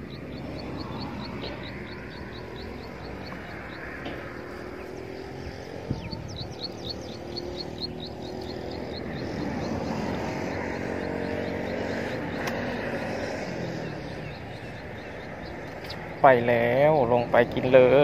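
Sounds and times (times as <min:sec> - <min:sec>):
wind noise: 0:00.0 - 0:16.2
distant engine drone: 0:00.0 - 0:18.0
rapid high chirps: 0:06.0 - 0:13.3.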